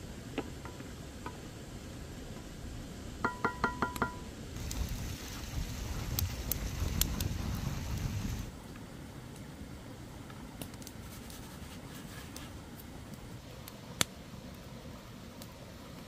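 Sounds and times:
hand brushing flour on wood: 0:11.0 - 0:12.6.

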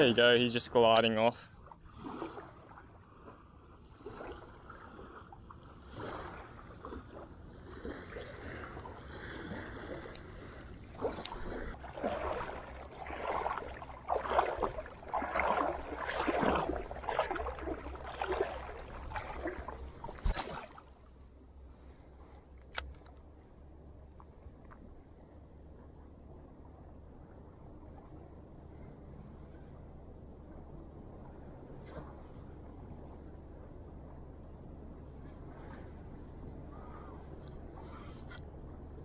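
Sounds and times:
shallow water sloshing: 0:00.0 - 0:29.7
steady low rumble: 0:00.0 - 0:39.0.

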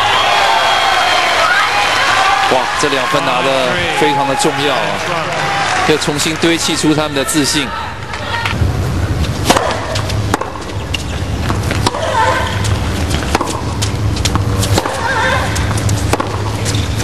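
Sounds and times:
low crowd rumble: 0:00.0 - 0:17.0
rackets striking tennis ball: 0:09.4 - 0:17.0.

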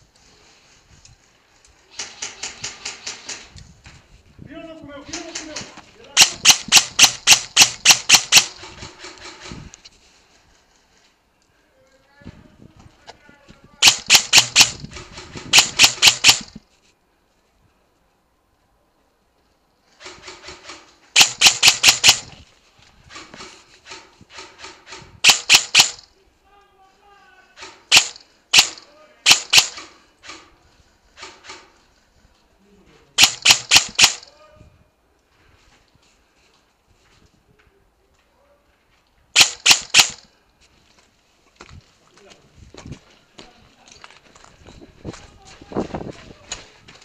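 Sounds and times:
airsoft gun shots: 0:06.2 - 0:08.9, 0:13.8 - 0:16.6, 0:20.6 - 0:22.3, 0:25.2 - 0:26.0, 0:27.9 - 0:30.0, 0:33.2 - 0:34.3, 0:39.4 - 0:40.3.

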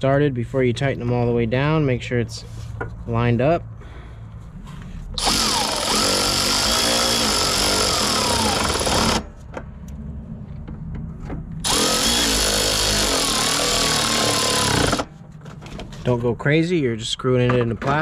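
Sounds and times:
cordless ratchet driving screws: 0:05.2 - 0:09.2, 0:11.6 - 0:15.1.

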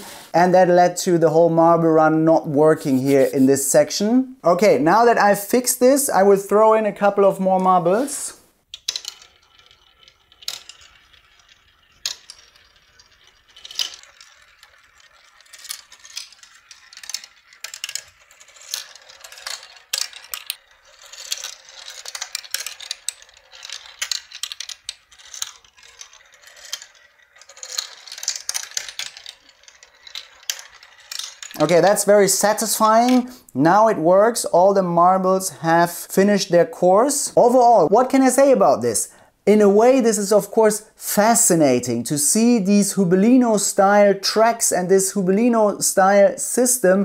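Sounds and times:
marbles clattering down a plastic run: 0:08.7 - 0:33.3.

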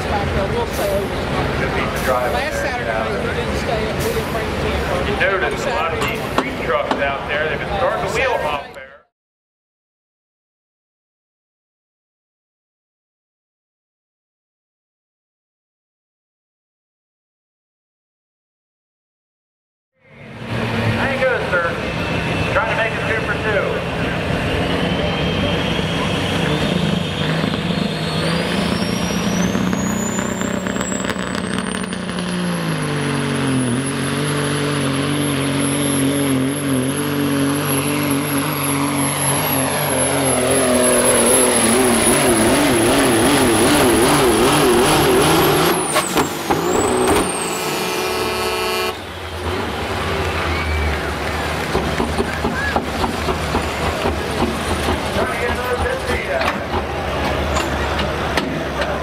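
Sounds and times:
diesel truck engine at full power: 0:00.0 - 0:08.9, 0:20.0 - 0:59.0
turbo whine whistle: 0:45.8 - 0:49.4.

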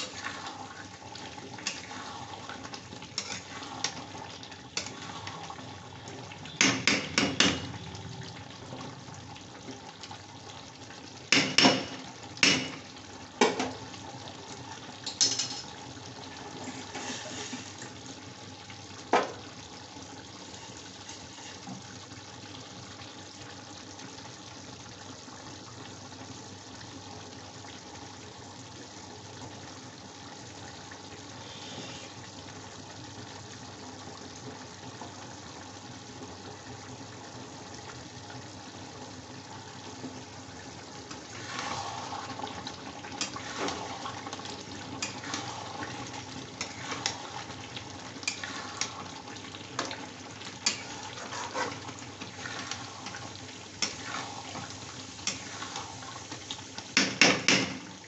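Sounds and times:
gravy bubbling: 0:00.0 - 0:15.0, 0:35.2 - 0:57.0.

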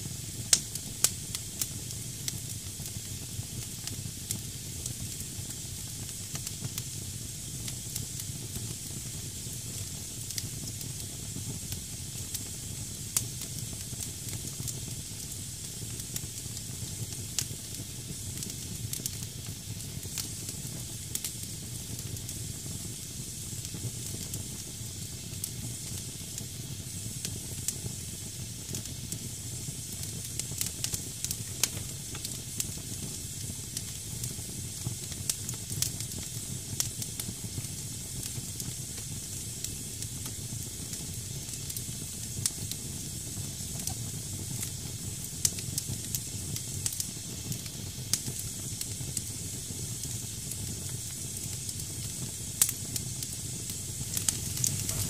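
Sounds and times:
fire crackling and popping: 0:00.0 - 0:55.0
hissing damp firewood: 0:15.6 - 0:55.0.

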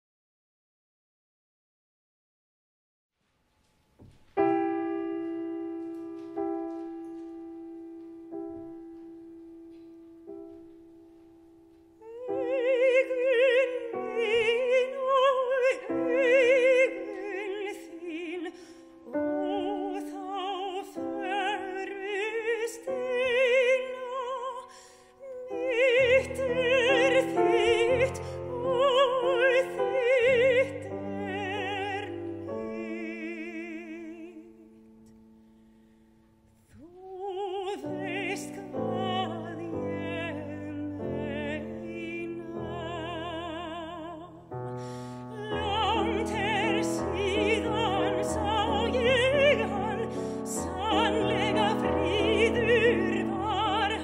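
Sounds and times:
piano chords: 0:04.0 - 0:54.0
mezzo-soprano singing with vibrato: 0:12.0 - 0:35.0, 0:36.7 - 0:54.0.

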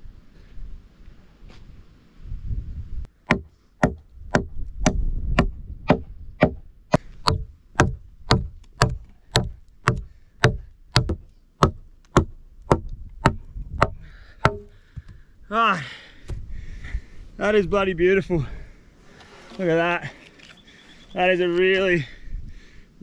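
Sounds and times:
hatchet chopping wood: 0:03.2 - 0:15.2.

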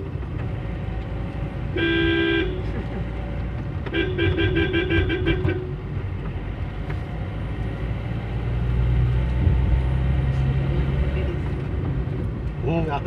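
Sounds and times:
engine and road noise: 0:00.0 - 0:13.0
car horn beeping rapidly: 0:01.7 - 0:02.7, 0:03.9 - 0:05.8.

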